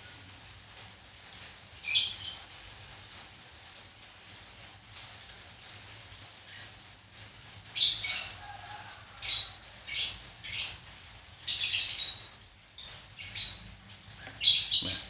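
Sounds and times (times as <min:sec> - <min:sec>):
bird chirping: 0:11.5 - 0:15.0.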